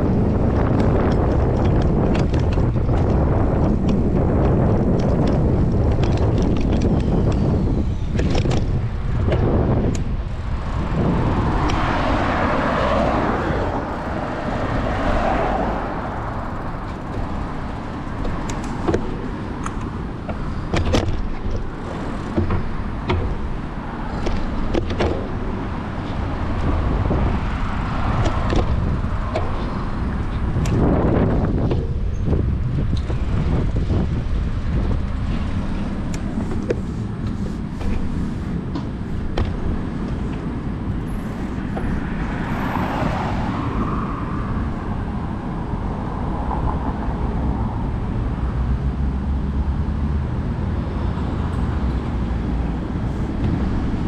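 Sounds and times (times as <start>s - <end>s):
road traffic: 0.0s - 54.0s
wind buffeting microphone: 0.0s - 54.0s
vehicle passing: 9.5s - 18.8s, 25.2s - 54.0s.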